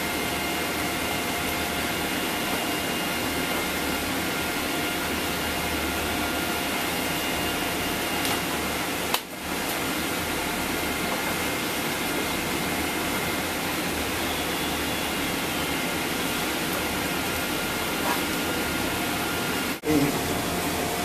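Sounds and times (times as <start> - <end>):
fan noise of moving air: 0.0 - 21.0.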